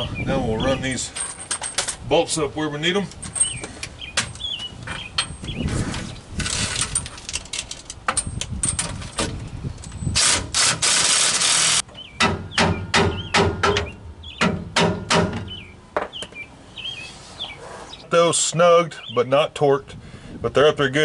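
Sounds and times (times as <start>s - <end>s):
impact wrench running: 10.2s - 11.8s.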